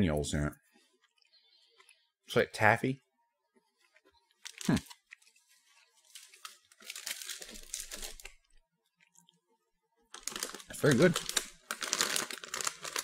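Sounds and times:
plastic packaging crinkling: 4.2 - 8.6, 10.1 - 13.0.

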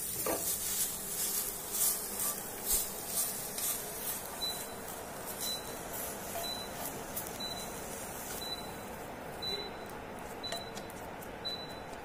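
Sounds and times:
spatula scraping pan: 0.0 - 4.2.

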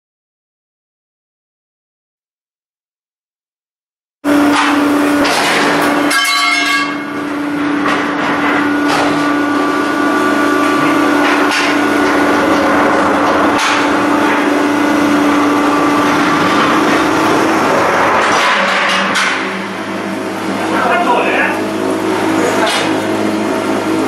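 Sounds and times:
machinery hum: 4.2 - 24.0
machine parts knocking and clanking: 4.5 - 7.0, 10.7 - 14.6, 16.0 - 19.9.

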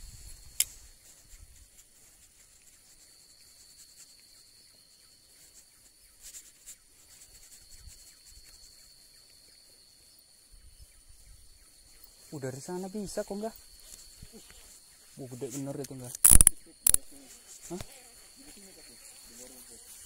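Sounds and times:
insects droning: 0.0 - 20.0
sharp click: 0.6 - 0.8, 15.8 - 17.1.

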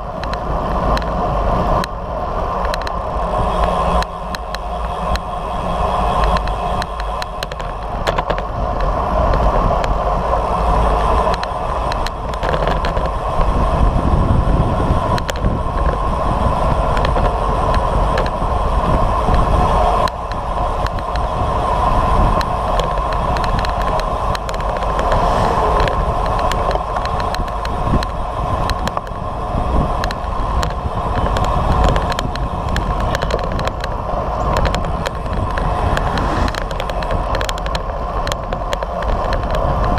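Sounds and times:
bicycle tyres rolling on asphalt: 0.0 - 39.9
wind rushing over microphone: 0.0 - 39.9
small clicks: 30.0 - 39.9.

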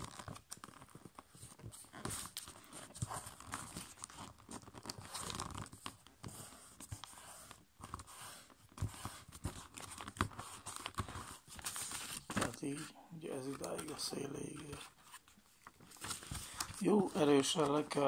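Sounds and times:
paper rustling and crinkling: 0.0 - 18.0.

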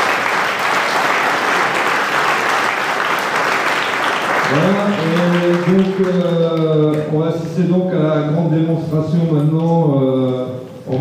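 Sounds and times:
crowd applauding: 0.0 - 7.1
man speaking: 4.5 - 11.0.

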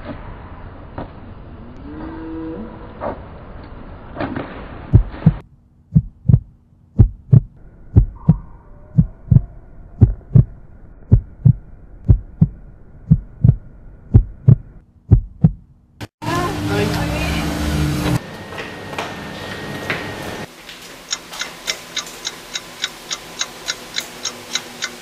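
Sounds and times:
heartbeat thumps: 4.9 - 15.7.

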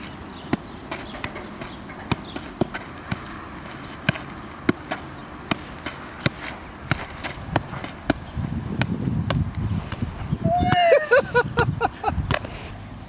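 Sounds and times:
foot thumping a football: 0.0 - 10.1.

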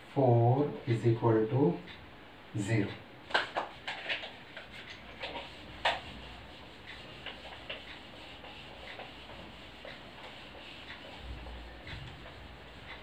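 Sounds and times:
eraser scuffing whiteboard: 3.5 - 13.0.

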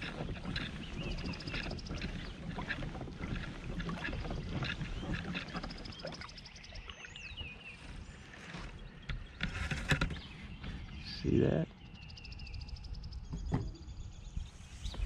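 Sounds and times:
water washing along hull: 0.0 - 11.8, 14.3 - 15.0
birds calling: 0.0 - 15.0
small clicks and knocks: 9.1 - 10.3.

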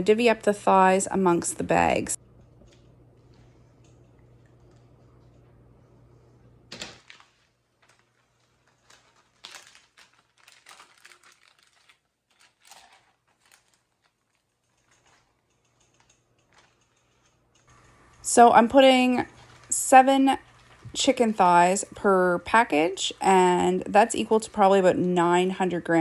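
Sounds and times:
plastic bags crinkling: 6.7 - 21.7.

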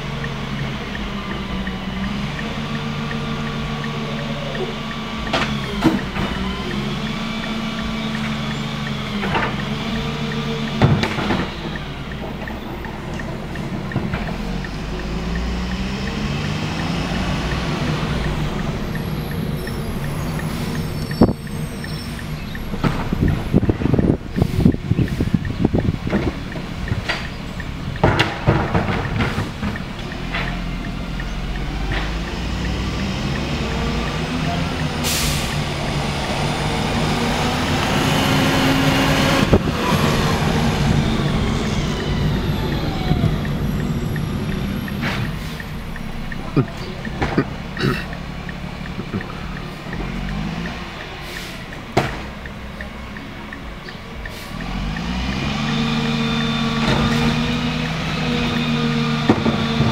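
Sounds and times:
truck diesel engine accelerating: 0.0 - 59.9
air brakes burst: 35.0 - 35.7.

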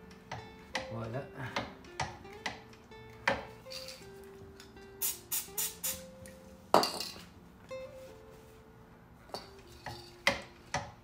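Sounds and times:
soft background music: 0.0 - 11.0.

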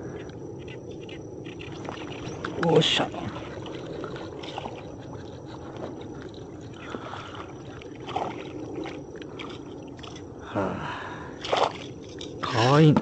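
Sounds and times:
fish splashing in water: 1.6 - 10.2, 11.4 - 12.2.

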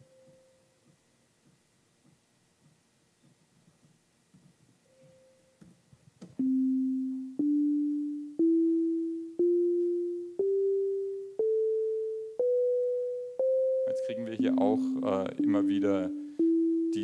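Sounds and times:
sine tone rising scale: 6.4 - 17.0.

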